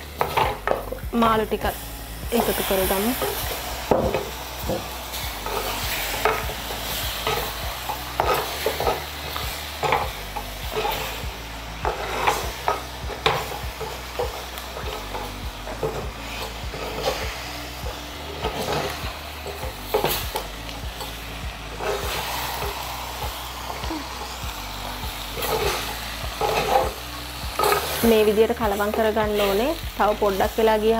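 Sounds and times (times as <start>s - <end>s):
spices sizzling: 0.0s - 30.9s
ladle scraping a clay pot: 21.7s - 22.8s.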